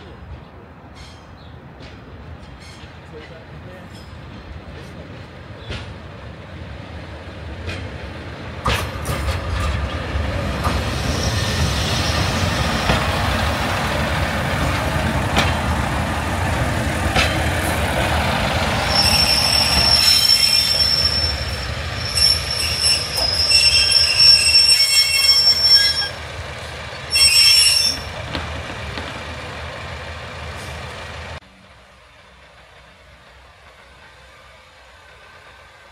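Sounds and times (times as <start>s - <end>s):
train rumbling: 0.0s - 35.9s
train wheels clicking: 7.4s - 31.4s
brakes squealing: 18.3s - 31.4s.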